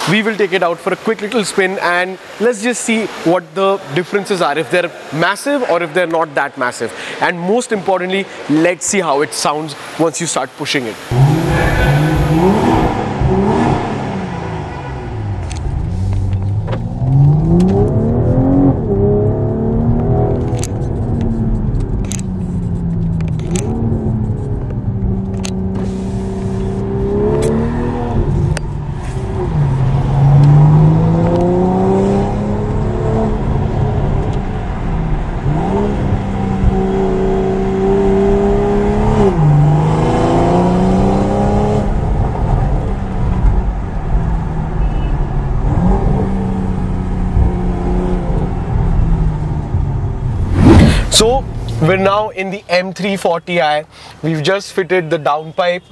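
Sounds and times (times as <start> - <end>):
car engine accelerating through gears: 11.1 - 52.0.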